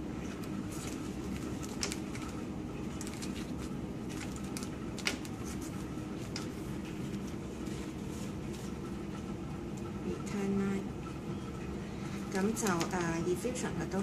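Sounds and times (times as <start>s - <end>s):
steady low hum: 0.0s - 14.0s
plastic tubing clicks and rustles: 0.3s - 7.8s.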